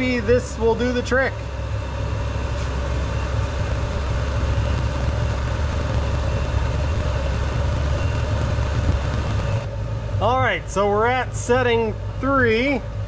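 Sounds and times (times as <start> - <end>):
heater burner rumble: 0.0 - 13.0
faint steady hum: 3.4 - 12.1.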